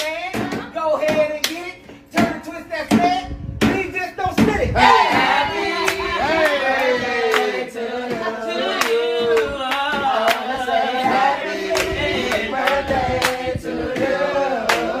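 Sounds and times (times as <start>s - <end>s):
people singing together: 0.0s - 1.3s, 4.7s - 15.0s
sharp hand claps: 0.0s - 2.3s, 5.1s - 7.6s, 11.7s - 13.4s, 14.0s - 15.0s.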